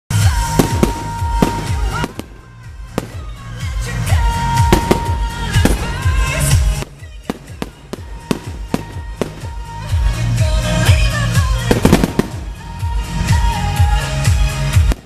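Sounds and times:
music playing: 0.1 - 15.0
firework shells bursting: 0.4 - 9.9, 11.6 - 13.0.

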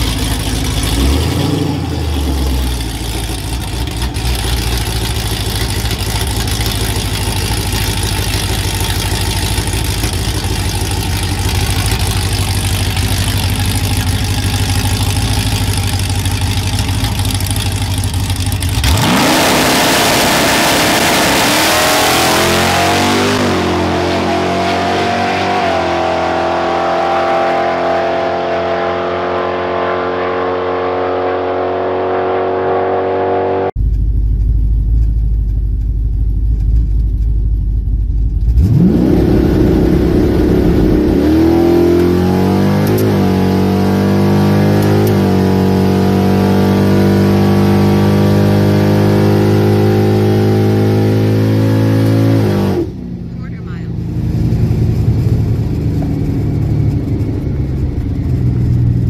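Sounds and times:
engine revving hard: 0.0 - 3.0, 18.8 - 33.8, 38.5 - 53.8
truck engine idling: 0.0 - 19.0, 33.8 - 38.6, 53.0 - 59.0.

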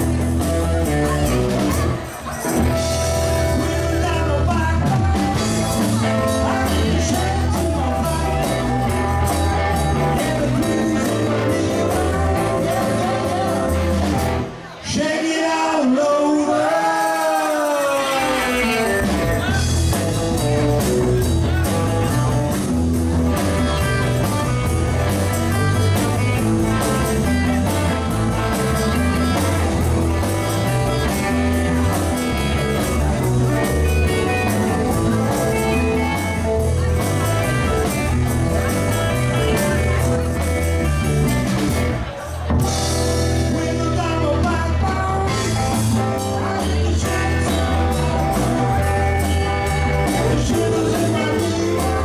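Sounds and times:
live rock band: 0.0 - 52.0
person singing: 3.2 - 22.6, 43.2 - 52.0.

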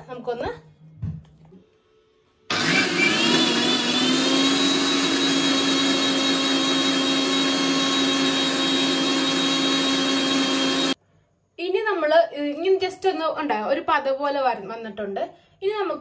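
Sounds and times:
mixer grinder motor whine: 2.5 - 11.0.

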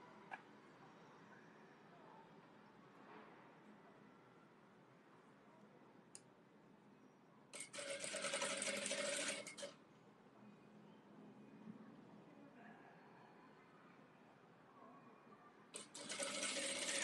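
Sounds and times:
sewing machine running: 7.6 - 9.7, 15.8 - 17.0.

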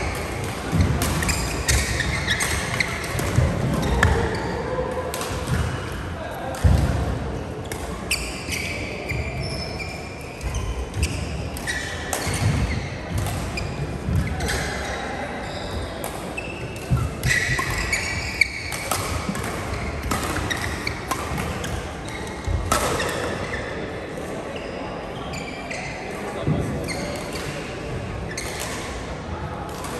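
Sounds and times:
sneakers squeaking on court: 0.0 - 4.5, 7.7 - 23.8
rackets hitting shuttlecock: 0.1 - 8.8, 10.4 - 15.0, 16.0 - 23.6.

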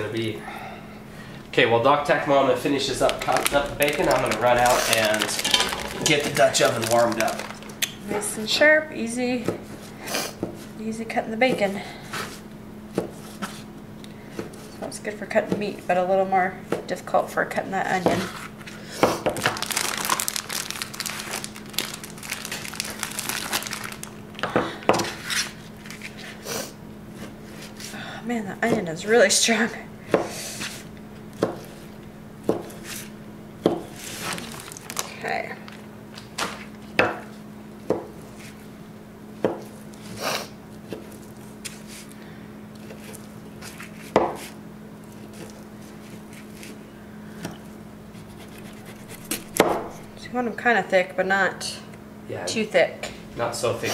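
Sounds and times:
steady low hum: 0.0 - 53.9
plastic package crinkling: 2.8 - 8.0, 19.4 - 24.5, 34.0 - 36.7
knife chopping on plastic mat: 11.4 - 13.7, 19.0 - 19.6, 30.1 - 34.4, 42.8 - 44.6, 48.2 - 50.0.

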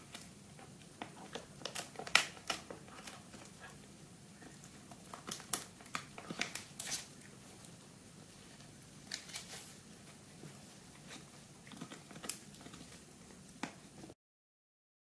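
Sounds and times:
dog gnawing crunches: 0.0 - 3.8, 4.4 - 7.2, 11.0 - 13.7.

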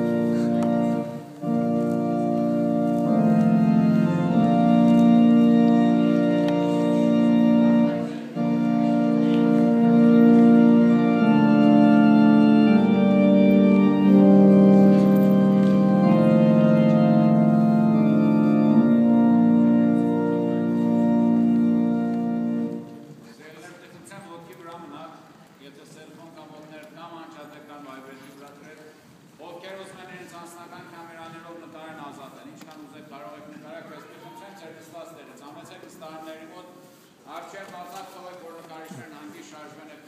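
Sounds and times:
organ playing held chords: 0.0 - 23.3.

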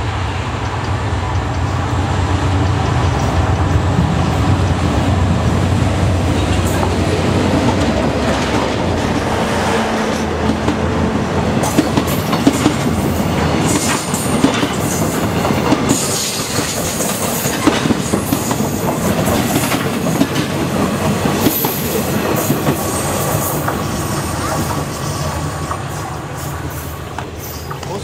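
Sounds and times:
locomotive engine: 0.0 - 28.0
train wheels clattering over rail joints: 10.2 - 28.0.

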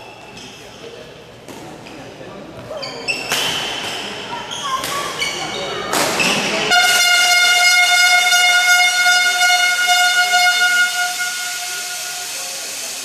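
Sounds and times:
loud horn blast: 6.6 - 13.0.

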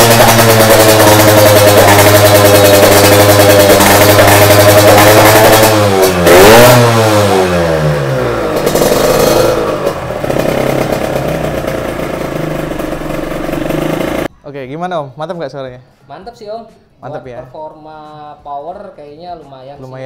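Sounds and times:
motorcycle engine revving and idling: 0.0 - 14.3.

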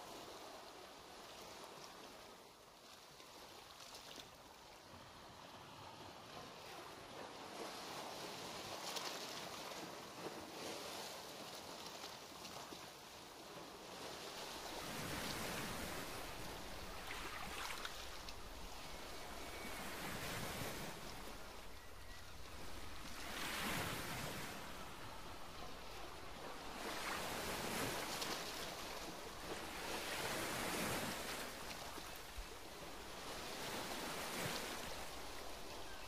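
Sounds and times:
ocean water washing: 5.0 - 36.0.

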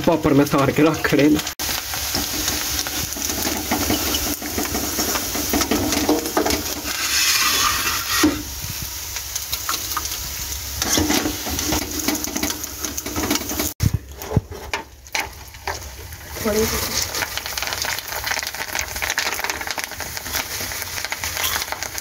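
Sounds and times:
food sizzling in hot oil: 0.0 - 22.0
skimmer scraping a pan: 2.1 - 8.6, 10.8 - 17.2.

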